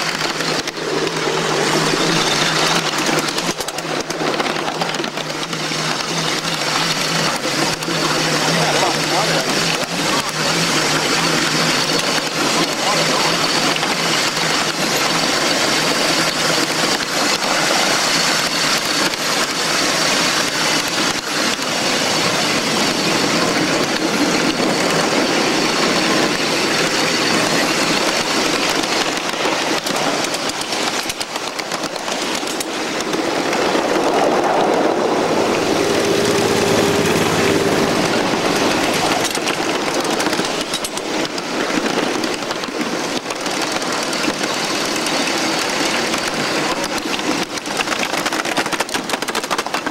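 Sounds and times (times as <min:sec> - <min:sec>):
train wheels on rail: 0:00.0 - 0:49.9.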